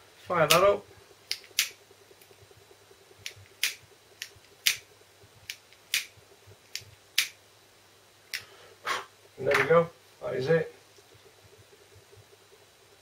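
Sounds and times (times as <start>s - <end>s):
lighter clicking: 1.3s - 1.8s, 3.2s - 4.8s, 5.4s - 6.1s, 6.7s - 7.4s.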